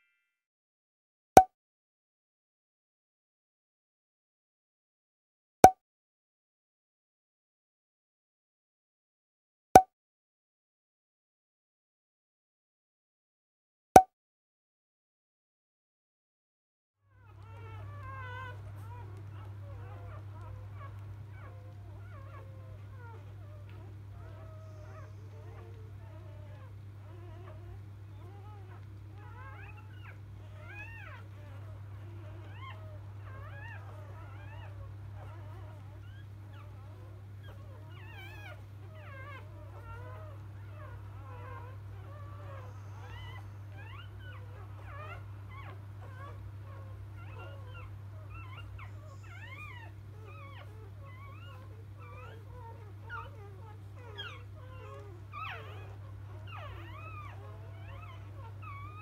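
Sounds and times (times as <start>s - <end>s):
puppies squeaking and whimpering: 17.2s - 59.0s.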